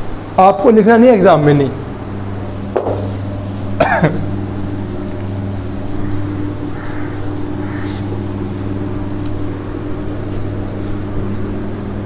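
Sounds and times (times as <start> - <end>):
low electrical hum: 0.0 - 12.0
duster wiping a whiteboard: 2.8 - 12.0.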